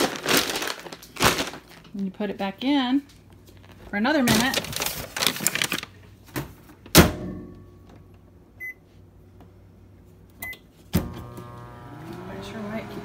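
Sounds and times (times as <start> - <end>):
paper bag crinkling: 0.0 - 2.1, 3.5 - 6.2.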